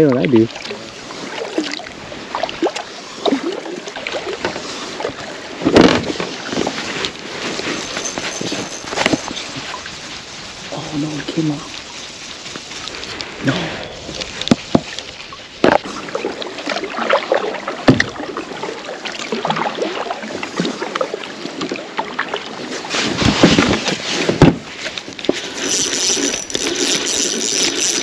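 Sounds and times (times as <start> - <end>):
water splashing from paddle: 0.5 - 28.0
fishing reel whirring and clicking: 7.6 - 9.4, 25.3 - 28.0.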